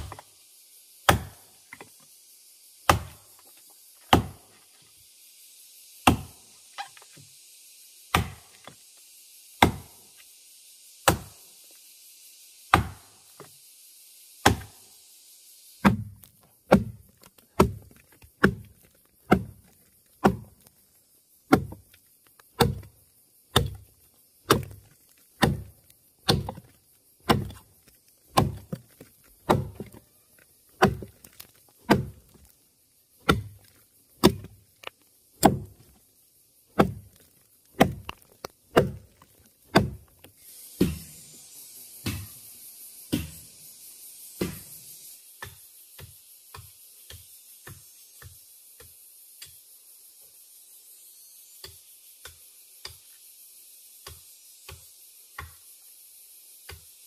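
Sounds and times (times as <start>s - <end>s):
tool striking wood: 1.1s - 1.9s, 2.9s - 3.2s, 9.6s - 9.9s, 11.1s - 11.4s, 12.7s - 13.1s, 14.4s - 14.8s, 15.8s - 18.7s, 19.3s - 19.6s, 20.2s - 20.5s, 21.5s - 21.9s, 22.6s - 22.9s, 23.5s - 23.9s, 24.5s - 24.8s, 25.4s - 27.6s, 28.3s - 28.8s, 29.4s - 30.0s, 30.8s - 31.2s, 31.8s - 32.4s, 34.2s - 34.6s, 35.4s - 35.8s, 36.8s - 37.2s, 37.8s - 40.1s, 40.8s - 41.2s, 42.0s - 42.4s, 43.1s - 43.4s, 44.4s - 44.7s.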